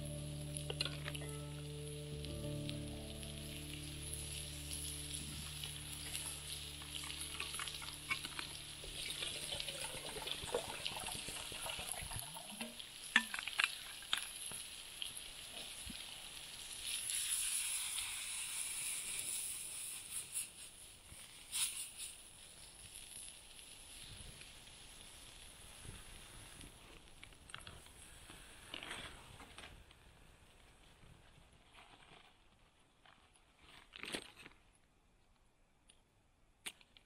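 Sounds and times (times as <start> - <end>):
food sizzling in a frying pan: 0.0 - 26.8
wood fire crackling: 0.0 - 30.6.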